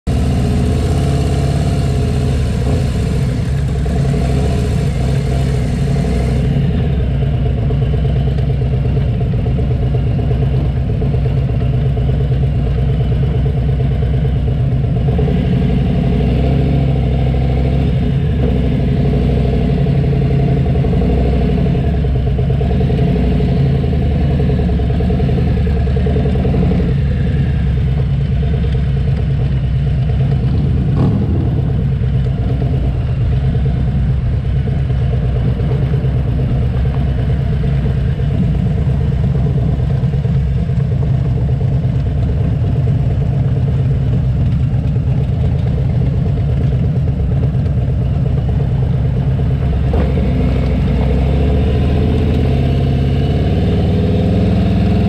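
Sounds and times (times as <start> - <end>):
motorcycle engine running: 0.0 - 55.0
road noise: 0.0 - 55.0
wind noise: 30.2 - 34.2.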